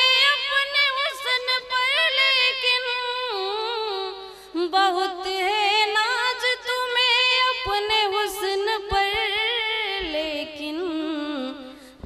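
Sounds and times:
woman singing into microphone: 0.0s - 12.0s.

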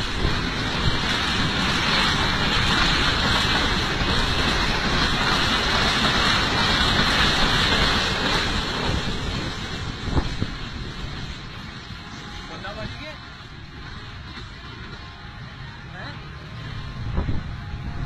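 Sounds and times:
wind buffeting microphone: 0.0s - 12.1s, 16.8s - 18.0s
passenger train passing: 0.0s - 18.0s.

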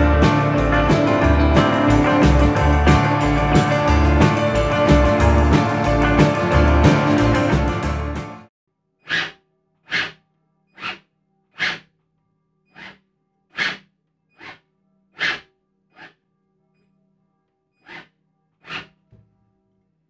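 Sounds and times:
hand tool scraping plastic: 9.1s - 10.2s, 10.8s - 11.9s, 12.7s - 14.6s, 15.2s - 16.2s, 17.8s - 19.2s.

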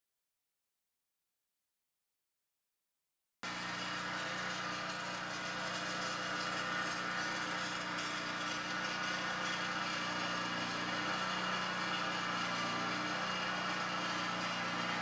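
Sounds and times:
engine-like hum with hiss: 3.4s - 15.0s.

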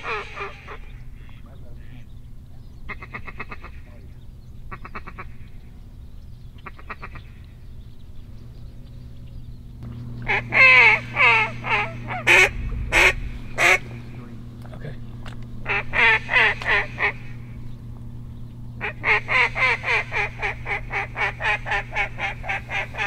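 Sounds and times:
duck chattering bursts: 0.0s - 2.0s, 10.2s - 14.1s, 15.6s - 17.6s, 18.8s - 23.0s
mallard quacks: 0.0s - 2.1s, 2.9s - 3.9s, 4.7s - 5.4s, 6.6s - 7.2s, 10.3s - 13.8s, 15.7s - 17.3s, 18.8s - 23.0s.

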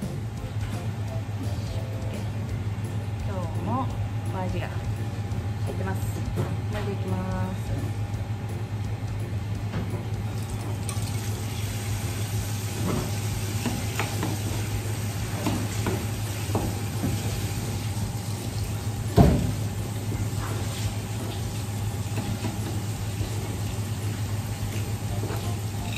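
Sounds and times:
steady hum: 0.0s - 25.9s.

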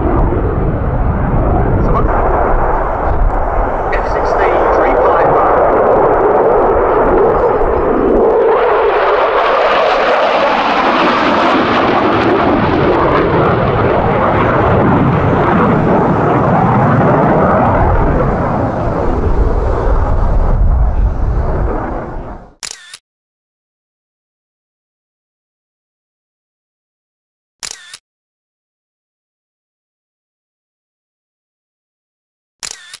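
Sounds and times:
deep rumble: 0.0s - 22.6s
fighter jet engine roar: 0.0s - 22.6s.

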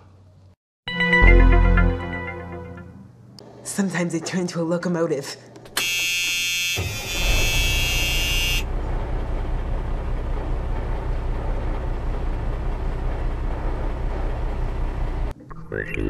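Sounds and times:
locomotive horn: 5.8s - 8.8s
low train rumble: 6.9s - 15.4s.

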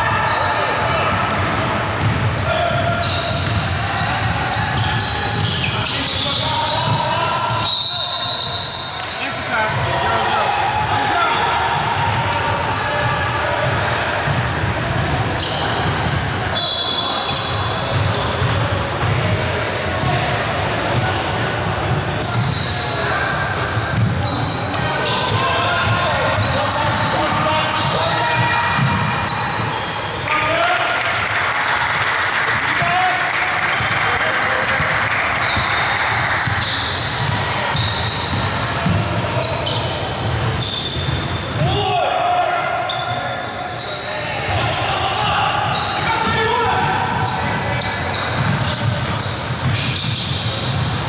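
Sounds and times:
sneaker squeaks: 0.0s - 30.4s, 34.6s - 44.6s, 45.3s - 51.0s
players' voices: 0.0s - 51.0s
basketball bouncing on court: 0.8s - 7.7s, 13.0s - 16.3s, 17.8s - 22.7s, 23.4s - 29.7s, 34.6s - 41.8s, 46.2s - 51.0s
basketball bouncing: 1.1s - 5.6s, 28.7s - 29.1s, 36.4s - 39.2s, 47.3s - 51.0s.

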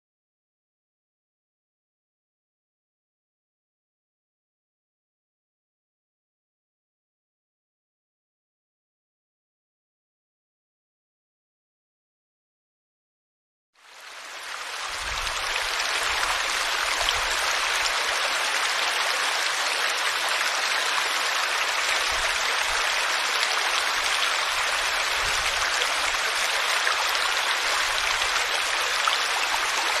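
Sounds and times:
stream splashing over cascade: 13.9s - 30.0s.

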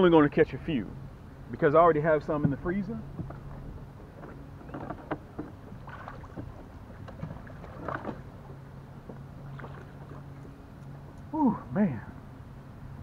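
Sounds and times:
faint water sounds: 0.0s - 13.0s
steady low hum: 0.0s - 13.0s
small knocks on kayak: 2.4s - 8.3s.

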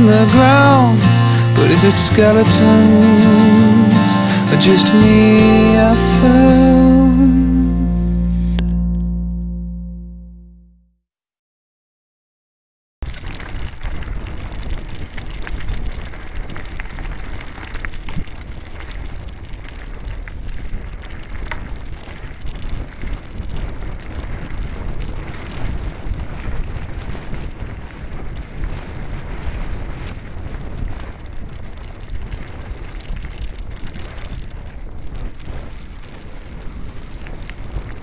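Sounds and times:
wind rumble on microphone: 0.0s - 9.1s, 13.0s - 38.0s
bike rattling over stones: 13.0s - 38.0s.

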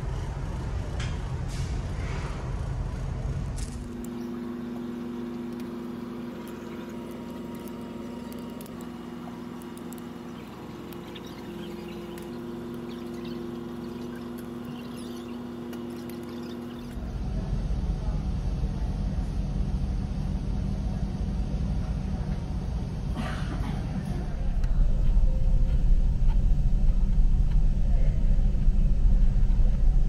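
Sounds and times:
ferry machinery humming: 0.0s - 30.0s
loud low rumble: 17.0s - 30.0s.

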